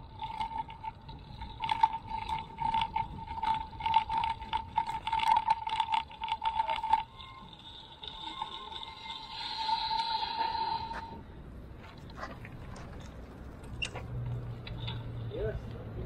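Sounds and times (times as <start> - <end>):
bicycle rattling over bumps: 0.0 - 9.6
bicycle tyres buzzing on concrete: 0.0 - 16.0.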